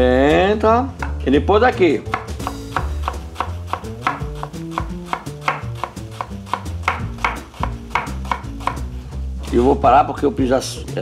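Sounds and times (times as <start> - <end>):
knife chopping on wooden board: 1.0 - 1.2, 2.0 - 9.0.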